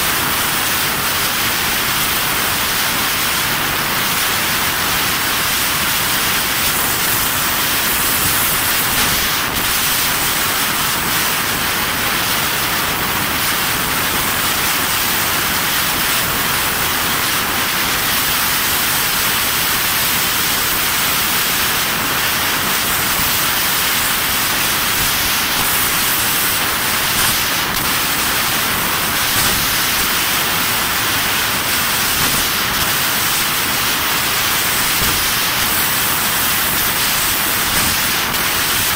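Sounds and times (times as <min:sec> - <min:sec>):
gas jet hissing: 0:05.4 - 0:11.4, 0:19.8 - 0:38.9.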